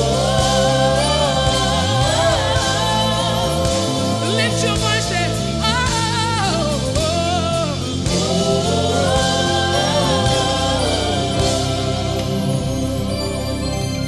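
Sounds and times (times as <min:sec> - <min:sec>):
lead singer vocal runs: 0:00.0 - 0:12.7
backing singers: 0:00.0 - 0:13.4
gospel band playing: 0:00.0 - 0:14.0.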